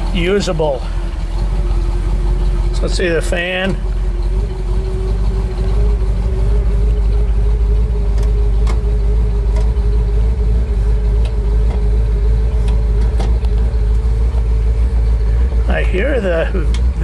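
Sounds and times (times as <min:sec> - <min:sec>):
car engine idling: 0:00.0 - 0:17.0.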